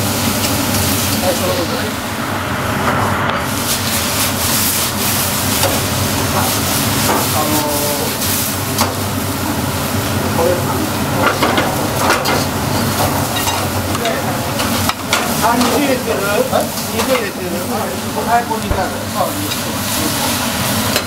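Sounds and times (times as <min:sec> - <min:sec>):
stir-fry sizzling in woks: 0:00.0 - 0:21.0
spatulas scraping against pans: 0:11.2 - 0:18.4, 0:19.0 - 0:21.0.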